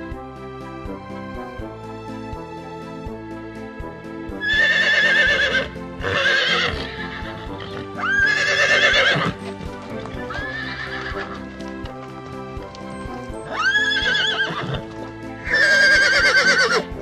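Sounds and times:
background music: 0.0s - 17.0s
horse whinnying: 4.4s - 11.8s, 13.3s - 17.0s.

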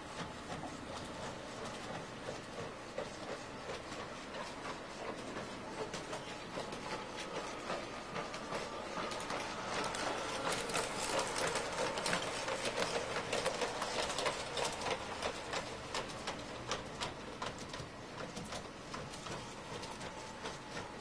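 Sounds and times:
motorized toys clicking: 7.7s - 20.9s.

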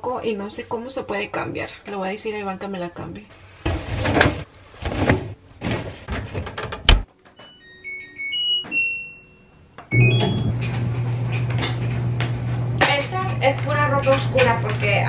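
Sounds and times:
dryer humming: 6.9s - 15.0s
short electronic beeps: 7.9s - 10.6s
clothes dryer clattering: 10.0s - 15.0s.

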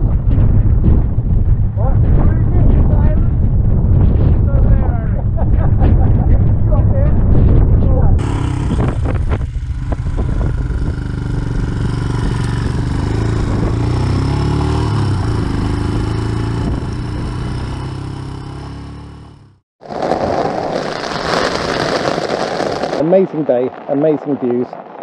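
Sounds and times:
wind rushing: 0.0s - 19.1s, 19.8s - 25.0s
motorcycle engine running: 7.2s - 19.6s
rain on tent fabric: 19.8s - 24.0s.

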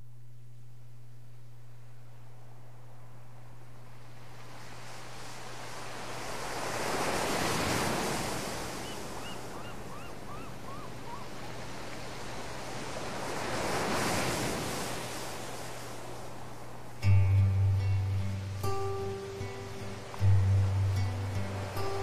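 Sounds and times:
faint low hum: 0.0s - 6.2s
ocean waves washing ashore: 2.4s - 22.0s.

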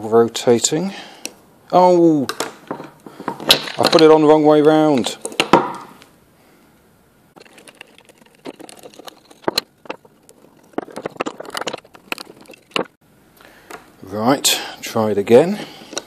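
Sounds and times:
wooden parts clicking and rattling: 2.3s - 4.4s, 5.0s - 6.0s, 7.4s - 13.0s, 15.8s - 16.0s.

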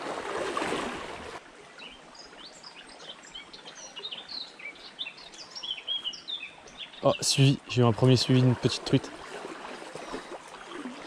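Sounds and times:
shallow stream rushing: 0.0s - 2.4s, 6.4s - 11.0s
songbirds chirping and singing: 1.8s - 9.0s.

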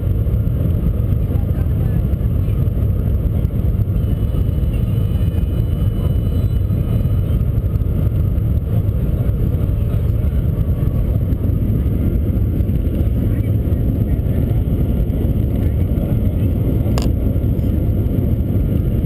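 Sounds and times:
train cabin low rumble: 0.0s - 19.0s.

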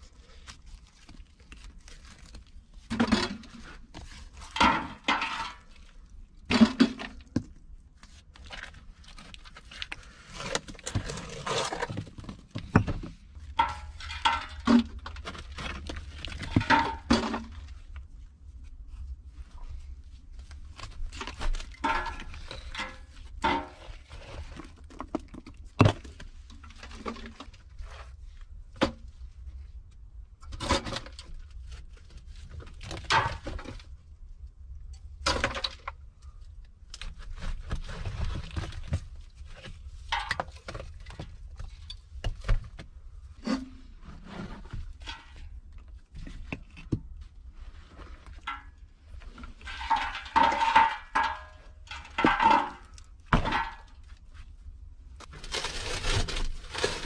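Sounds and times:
bricks thunking and scraping: 8.4s - 17.7s, 21.0s - 27.5s, 48.0s - 54.0s.

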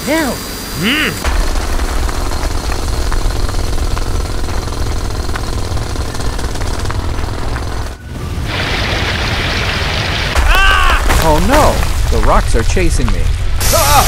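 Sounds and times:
rotary drill boring through rock: 1.2s - 8.0s.

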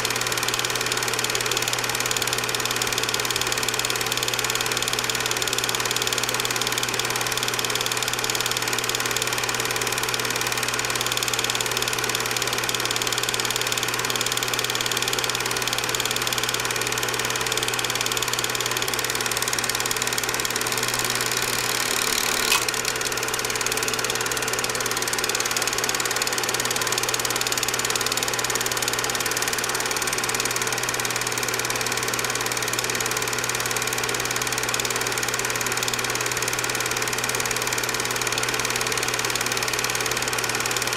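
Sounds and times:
film projector whirring: 0.0s - 40.9s
brief click: 21.8s - 23.0s.

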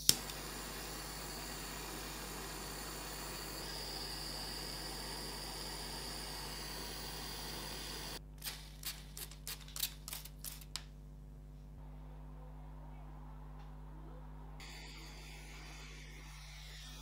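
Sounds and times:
gas torch hissing: 0.0s - 9.1s.

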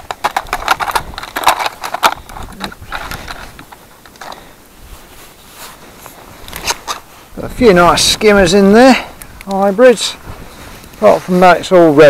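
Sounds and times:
net rustling and clicking: 0.0s - 4.5s, 6.0s - 7.1s.

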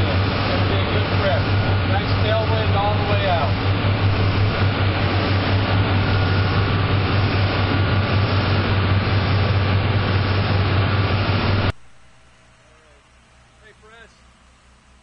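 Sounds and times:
wake water rushing: 0.0s - 11.7s
boat engines droning: 0.0s - 15.0s
wind: 0.0s - 15.0s.

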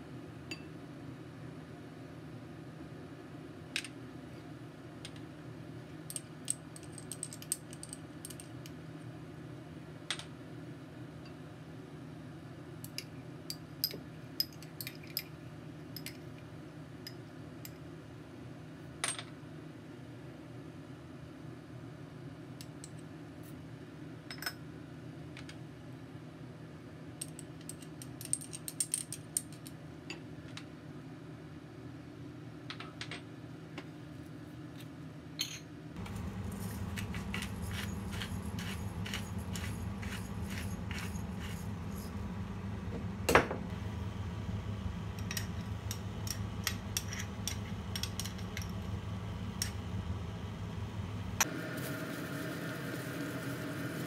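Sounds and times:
low hum: 36.0s - 54.0s.

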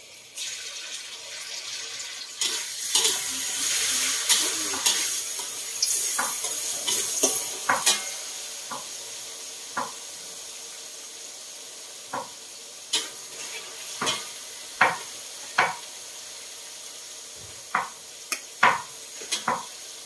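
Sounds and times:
food sizzling in hot oil: 0.0s - 20.0s
metal spatula scraping wok: 2.4s - 8.3s.

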